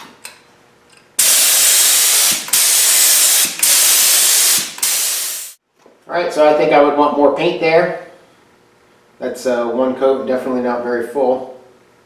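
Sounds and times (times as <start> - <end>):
spray gun hissing: 1.2 - 5.6.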